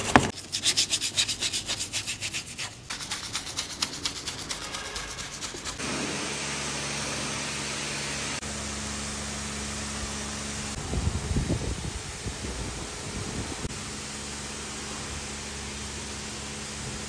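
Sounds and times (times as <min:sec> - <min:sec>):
brush scrubbing metal: 0:00.0 - 0:06.2
pressure washer water jet: 0:02.9 - 0:17.0
pressure washer motor hum: 0:04.6 - 0:17.0.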